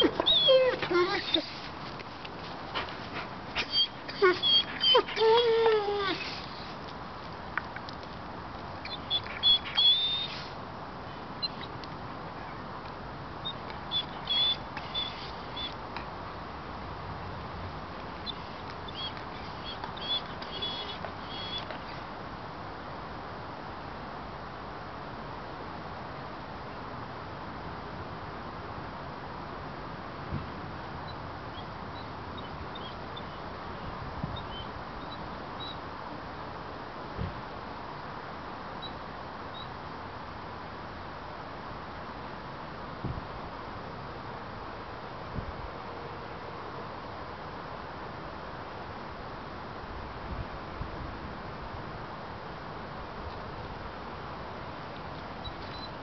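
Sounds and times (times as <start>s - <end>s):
dog whining: 0.0s - 1.7s, 3.6s - 6.8s, 8.8s - 10.5s, 13.4s - 15.8s, 18.2s - 22.0s.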